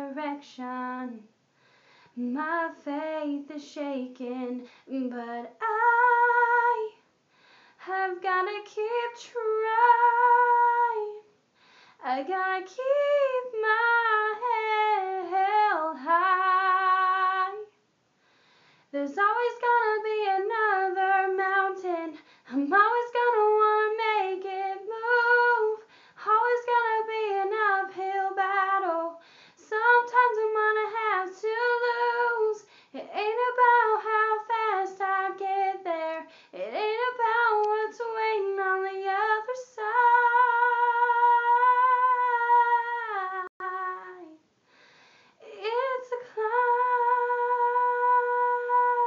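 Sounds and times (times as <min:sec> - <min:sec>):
girl singing a cappella: 0:00.0 - 0:01.4, 0:02.2 - 0:07.1, 0:07.8 - 0:11.4, 0:12.0 - 0:17.8, 0:18.9 - 0:44.5, 0:45.4 - 0:49.0.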